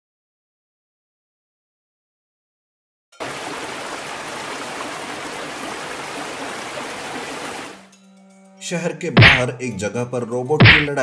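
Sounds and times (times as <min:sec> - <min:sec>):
cascading fountain water: 0:03.2 - 0:07.9.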